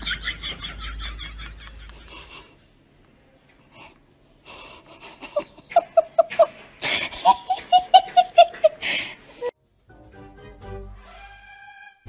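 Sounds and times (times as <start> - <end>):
person laughing hard: 0.0 - 2.5, 4.7 - 9.5.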